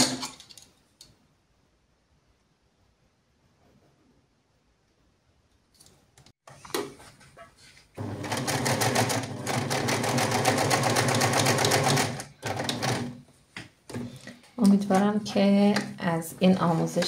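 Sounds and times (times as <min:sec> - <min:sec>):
sewing machine running: 0:08.0 - 0:13.2.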